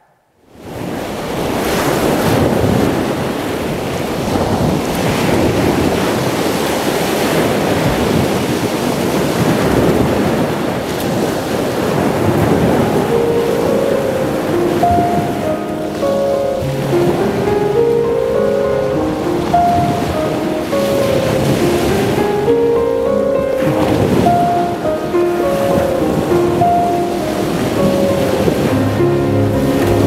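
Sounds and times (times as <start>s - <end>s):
ocean surf over sound system: 0.0s - 30.0s
faint musical notes: 12.6s - 30.0s.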